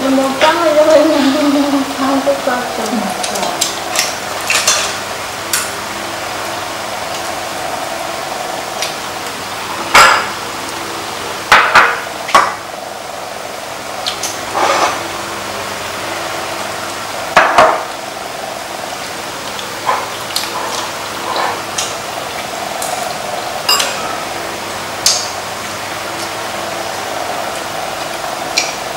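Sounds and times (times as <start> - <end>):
background hum: 0.0 - 28.9
tableware clinking: 23.7 - 24.1.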